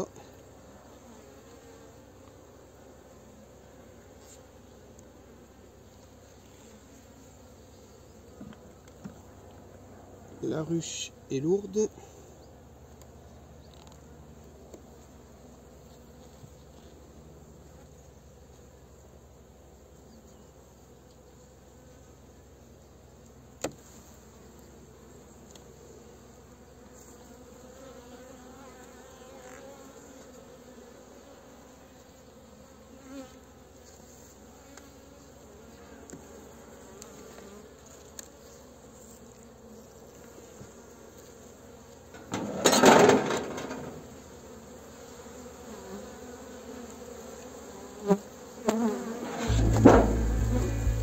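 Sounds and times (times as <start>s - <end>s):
honey bees buzzing: 0.0s - 18.2s, 24.0s - 51.0s
loud noise: 49.4s - 51.0s.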